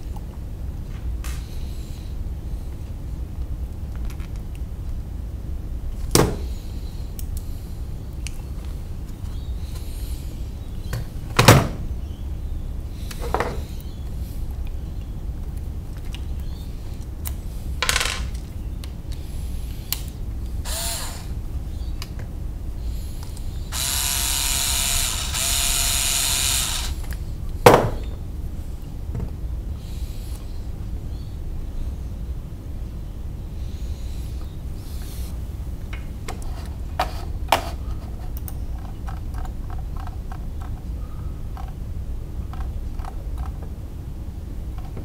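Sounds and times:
cordless screwdriver running: 20.7 - 21.3, 23.7 - 27.0.

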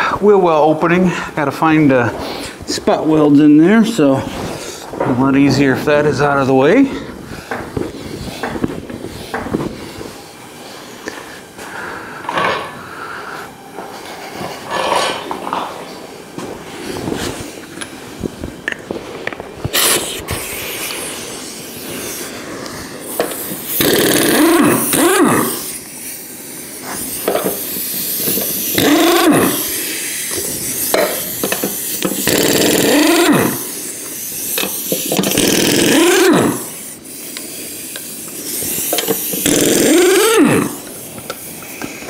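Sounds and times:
pneumatic impact wrench bursts: 19.7 - 42.0.

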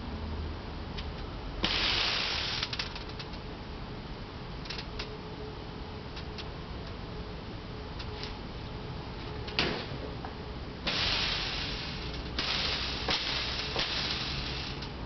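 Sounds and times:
fog machine hissing: 1.6 - 2.7, 10.9 - 14.8.

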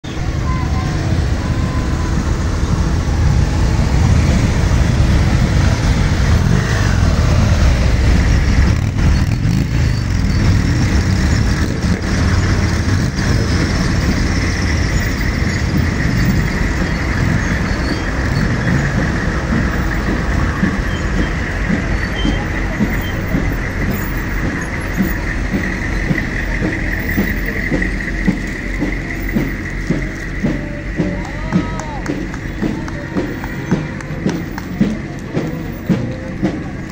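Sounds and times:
vehicle engines rumbling: 0.0 - 36.9
steady high tone: 0.1 - 8.7.

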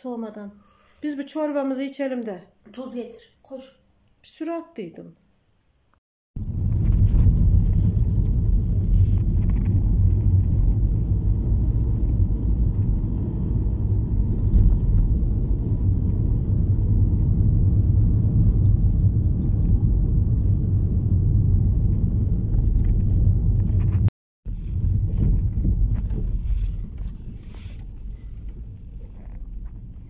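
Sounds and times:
car engine and tyres rumbling: 6.4 - 30.0.

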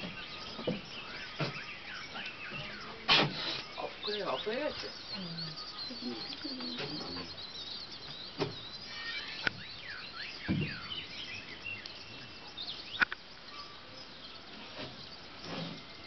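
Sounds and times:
small birds chirping: 0.0 - 16.0.

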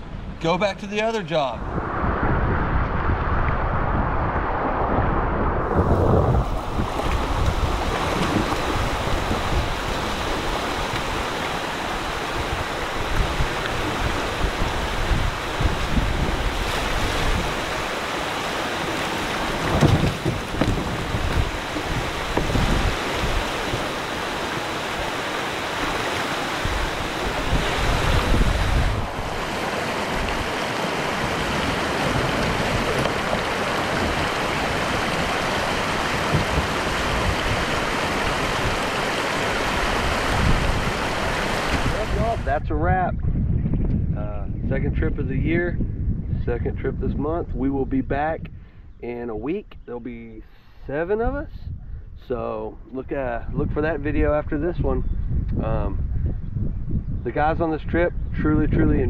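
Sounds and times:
wind buffeting microphone: 0.0 - 59.0
river water rushing over rocks: 6.2 - 42.4.

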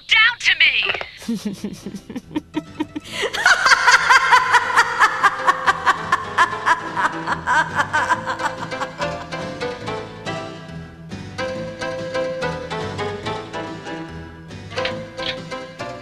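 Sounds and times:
woman laughing: 1.2 - 9.4.

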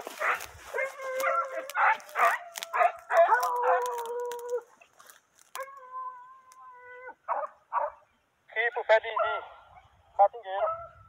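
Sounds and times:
hounds baying: 0.0 - 4.8, 5.6 - 8.1, 9.1 - 10.0.

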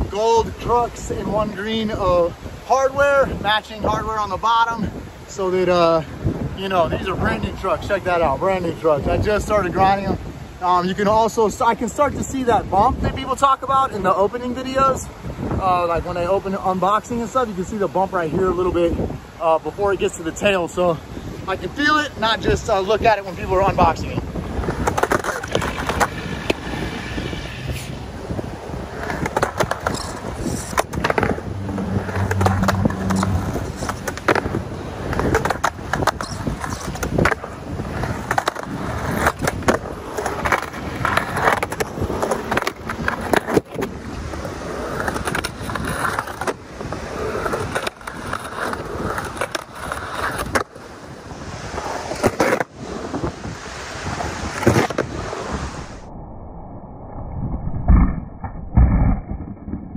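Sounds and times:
skateboard rolling on concrete: 0.0 - 56.1
skateboard trucks grinding on coping: 21.4 - 55.9
skateboard clacks: 24.6 - 27.4, 28.8 - 50.8.

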